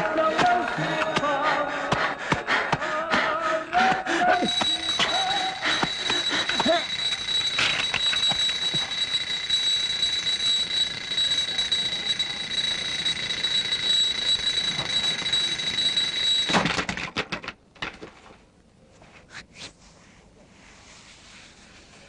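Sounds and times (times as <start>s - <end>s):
hand smacking alarm clock: 0.0s - 16.8s
alarm clock ringing: 3.8s - 16.8s.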